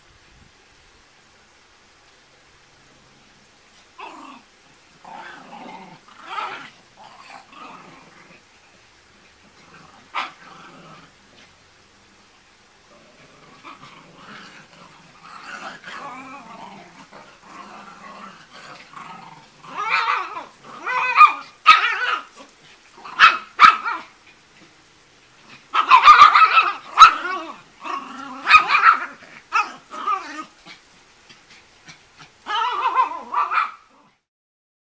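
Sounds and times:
small dogs growling: 3.0 - 34.3
small dogs barking: 9.4 - 11.1, 13.6 - 24.8, 25.4 - 34.1.

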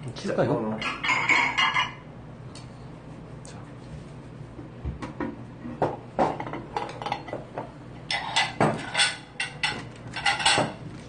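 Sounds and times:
plates and cutlery clattering: 0.8 - 2.0, 6.2 - 7.4, 8.1 - 10.8.

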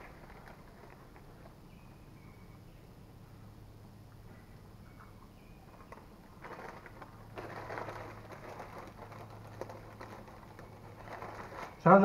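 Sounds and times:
paper bag rustling: 0.0 - 1.5, 6.4 - 12.0.

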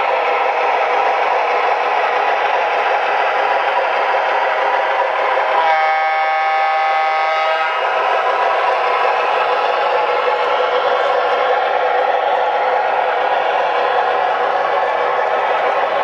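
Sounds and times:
model train horn: 5.6 - 8.0.

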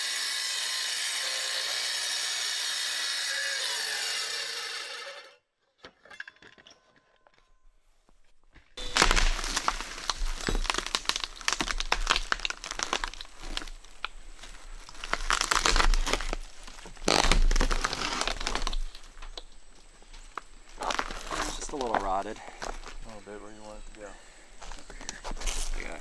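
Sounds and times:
roof plywood cracking and splintering: 8.8 - 14.0, 14.8 - 19.0.

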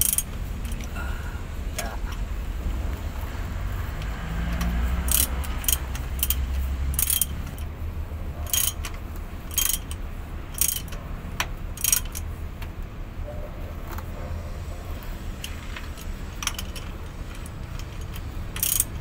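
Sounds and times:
ratchet wrench clicking: 0.0 - 1.0, 3.1 - 7.8, 8.4 - 12.4, 15.3 - 19.0
low steady rumble: 0.0 - 19.0.

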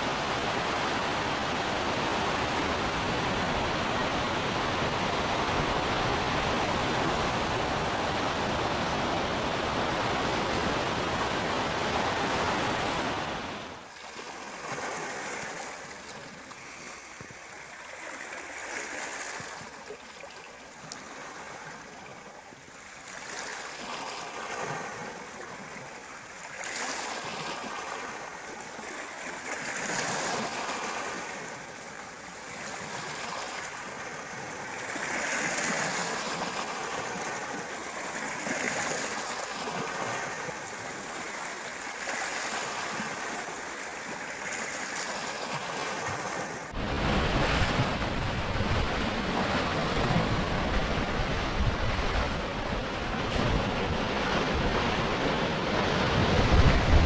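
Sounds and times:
moving water washing: 0.0 - 13.9, 45.8 - 57.0.

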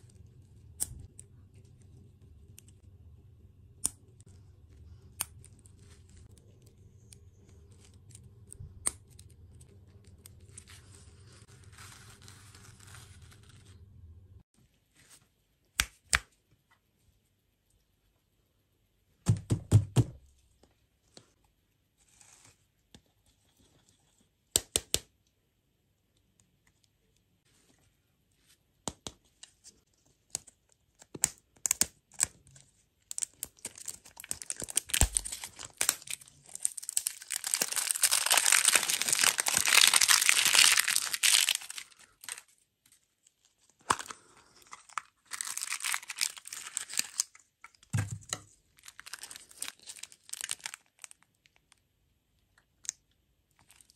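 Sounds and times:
wrapper tearing and crinkling: 33.1 - 42.6, 43.8 - 47.4, 48.8 - 51.6, 53.6 - 53.9.

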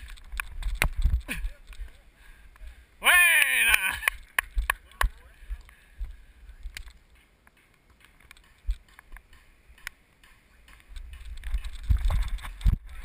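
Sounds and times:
wind buffeting microphone: 11.0 - 13.0.

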